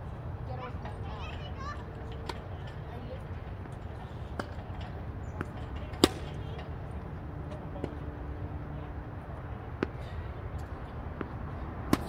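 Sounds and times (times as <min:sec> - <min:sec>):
tennis ball hit by racquet: 0:05.3 - 0:06.6, 0:11.2 - 0:12.0.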